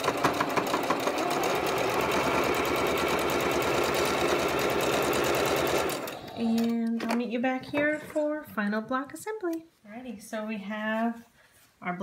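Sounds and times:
sewing machine stitching: 0.0 - 6.9.

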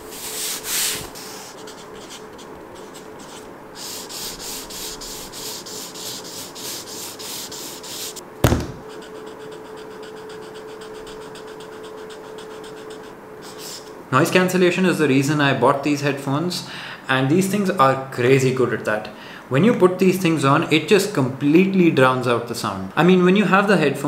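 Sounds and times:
marker scribbling on paper: 0.1 - 8.2, 8.9 - 13.9
thump: 8.4 - 8.8.

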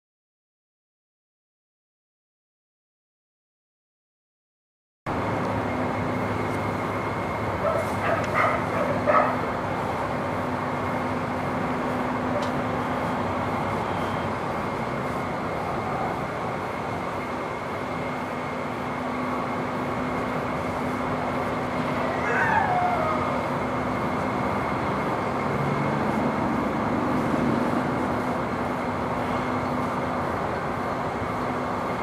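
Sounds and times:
steady drone and hiss: 5.1 - 32.0
dog barking: 7.6 - 9.4.

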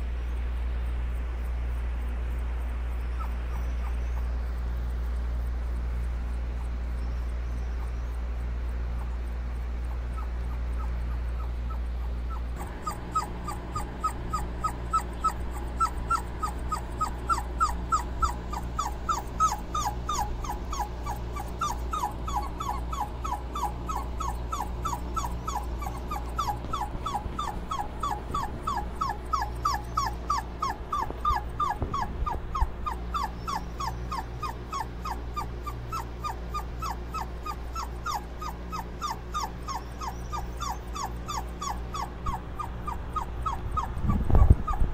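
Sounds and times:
steady low hum: 0.0 - 44.9
puppy whining: 2.8 - 44.9.

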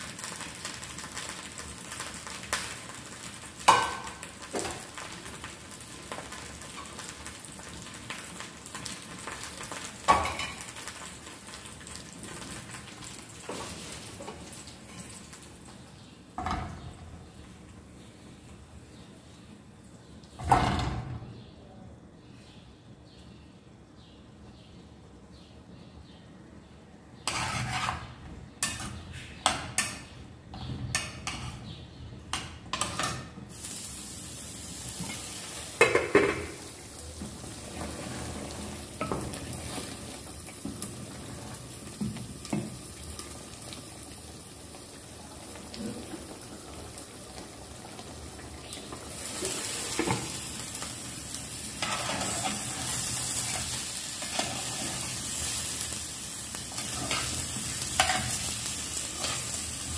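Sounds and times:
hot oil sizzling: 0.0 - 15.8, 27.3 - 29.0, 32.4 - 59.9
metal spoon scraping a pan: 27.2 - 29.1, 31.0 - 31.7, 51.8 - 55.0.

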